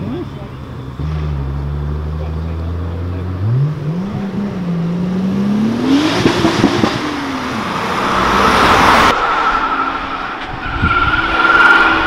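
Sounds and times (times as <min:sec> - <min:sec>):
car engine revving hard: 0:00.9 - 0:09.2
tyre squeal: 0:08.2 - 0:12.0.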